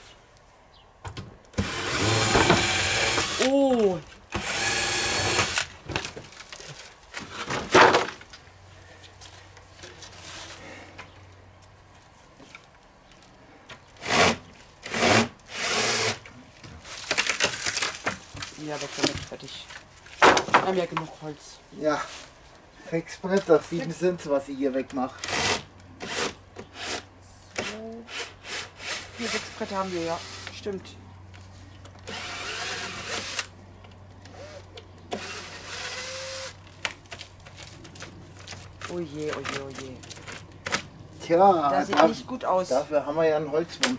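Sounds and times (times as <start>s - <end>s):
electric screwdriver running: 1.6s - 3.5s, 4.4s - 5.7s, 32.1s - 33.5s.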